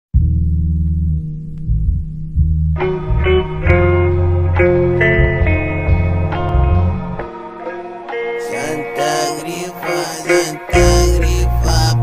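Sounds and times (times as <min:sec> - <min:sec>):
deep sustained bass notes: 0:00.2 - 0:07.2, 0:10.7 - 0:12.0.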